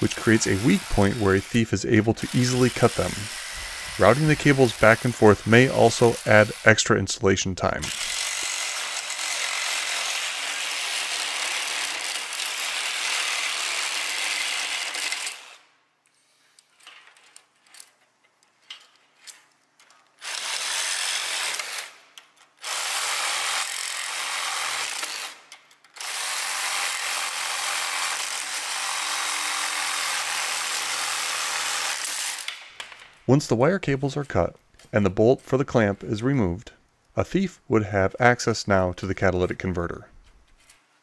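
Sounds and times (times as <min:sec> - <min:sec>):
reciprocating saw cutting steel cable: 0:00.0 - 0:07.0, 0:07.8 - 0:15.7, 0:20.2 - 0:22.0, 0:22.6 - 0:32.6.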